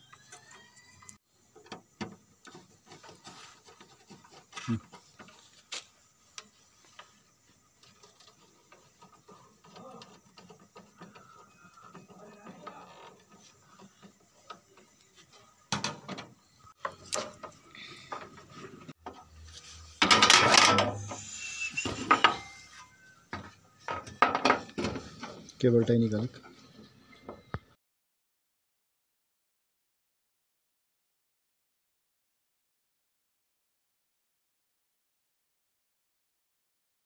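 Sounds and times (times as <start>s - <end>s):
scraping clatter: 6.5s - 25.5s.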